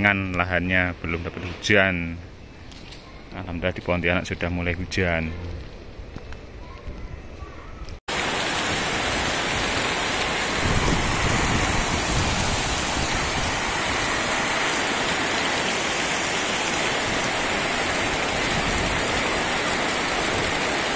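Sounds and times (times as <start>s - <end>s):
heavy rain pouring: 8.0s - 20.9s.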